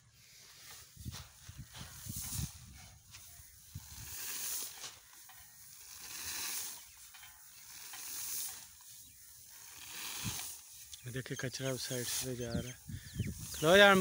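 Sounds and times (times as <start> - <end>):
grain showering down: 5.7 - 6.9, 9.5 - 10.7.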